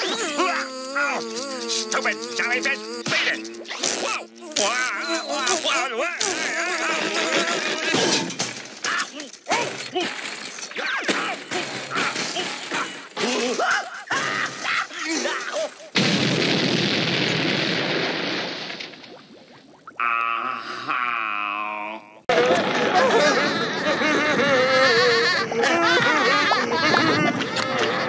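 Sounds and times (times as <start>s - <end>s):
cartoon crashes and clatters: 0.0s - 19.3s
cartoon explosion blast: 16.0s - 19.2s.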